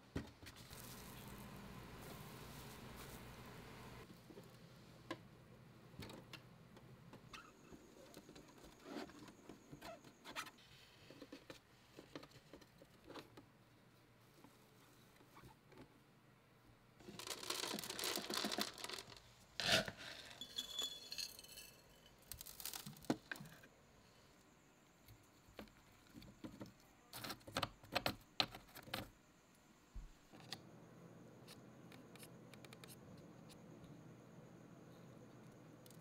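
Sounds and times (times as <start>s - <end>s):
faint steady hiss: 0.0s - 36.0s.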